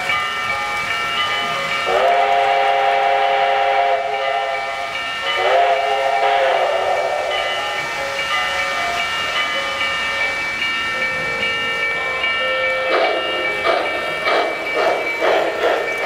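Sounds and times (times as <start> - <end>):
model steam locomotive whistle: 1.8 - 7.8, 12.8 - 16.0.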